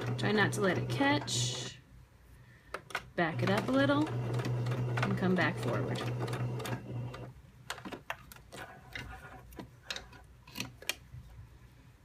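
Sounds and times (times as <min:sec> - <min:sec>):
sewing machine stitching: 0:00.0 - 0:01.7, 0:03.2 - 0:07.3.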